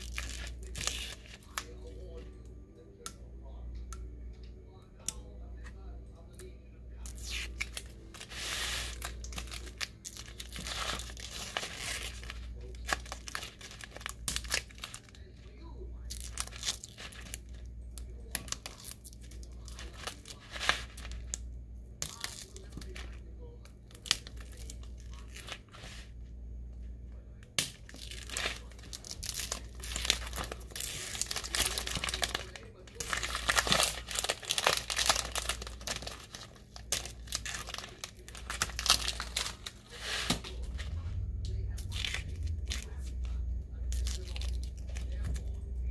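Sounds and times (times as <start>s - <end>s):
vinyl scrap crinkling: 0.0s - 1.9s, 7.0s - 15.4s, 18.3s - 21.4s, 27.8s - 43.2s
low steady hum: 0.0s - 45.9s.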